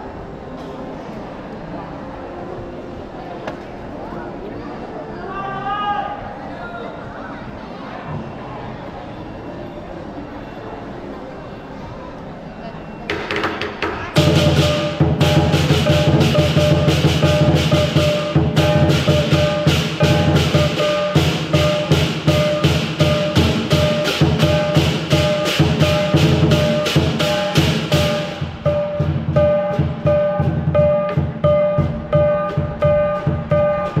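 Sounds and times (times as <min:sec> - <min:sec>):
large drum fast rhythm: 0:13.2 - 0:34.0
hand cymbals crashing: 0:14.2 - 0:34.0
ringing metallic tones: 0:14.2 - 0:34.0.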